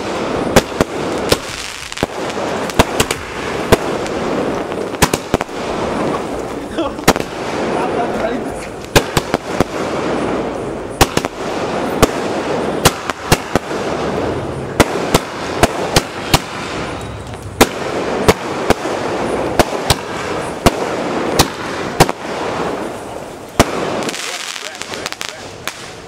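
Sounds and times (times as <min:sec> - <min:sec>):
fireworks bangs: 0:00.0 - 0:26.0
fireworks hiss: 0:00.0 - 0:26.0.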